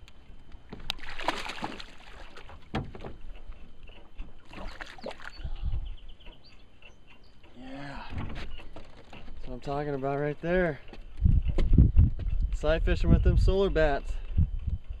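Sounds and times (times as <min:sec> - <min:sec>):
fish splashing at water surface: 0:00.9 - 0:02.6.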